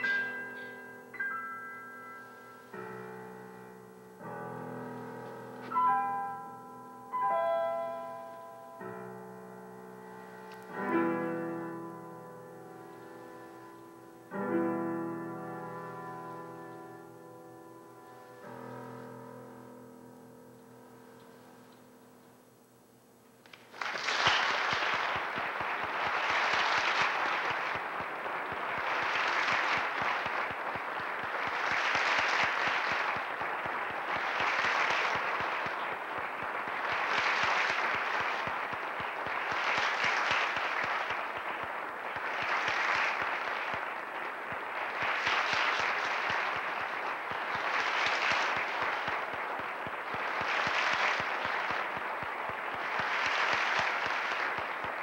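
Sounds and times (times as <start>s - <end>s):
audience applauding: 0.0s - 0.7s, 23.5s - 55.0s.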